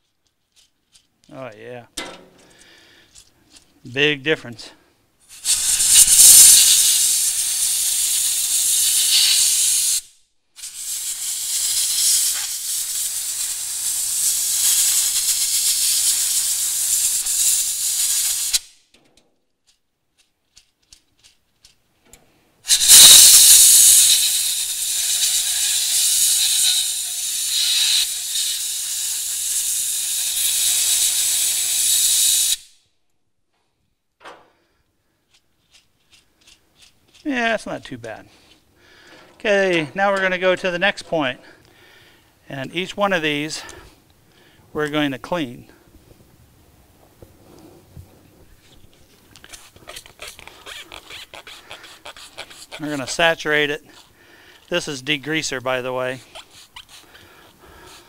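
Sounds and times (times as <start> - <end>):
compressed air blow gun hissing: 5.3 - 18.7, 22.6 - 32.7, 49.3 - 58.0.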